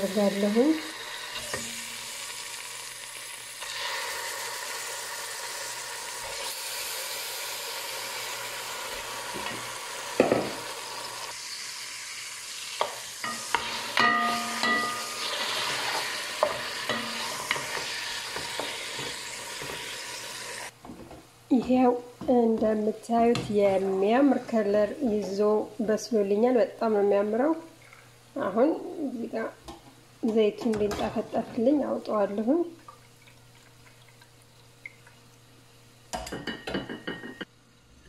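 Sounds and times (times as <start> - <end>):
meat sizzling in hot oil: 0.0 - 20.7.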